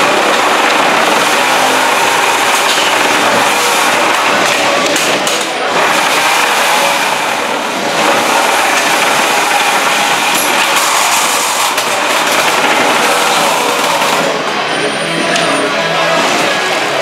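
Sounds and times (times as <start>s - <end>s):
electric motors whirring: 0.0s - 17.0s.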